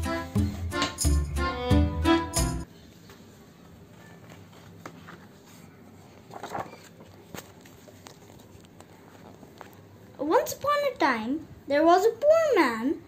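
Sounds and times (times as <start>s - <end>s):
music: 0.0s - 2.7s
paper rustling: 3.2s - 9.8s.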